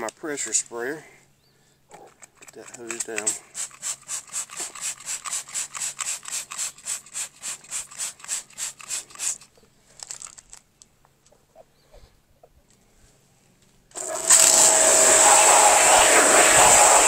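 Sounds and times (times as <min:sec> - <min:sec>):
spray bottle squirts: 0:02.9 - 0:09.5, 0:14.0 - 0:17.0.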